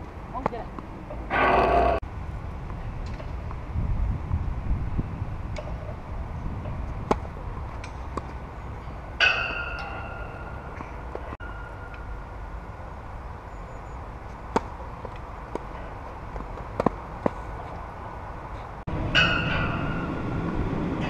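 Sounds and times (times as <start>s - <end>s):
steady low rumble: 0.0s - 21.0s
tennis ball hit by racket: 7.0s - 8.4s, 14.5s - 17.4s.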